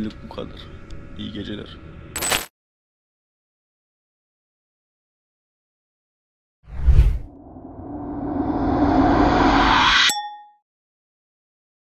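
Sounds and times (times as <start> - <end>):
rising whoosh: 6.7 - 10.2.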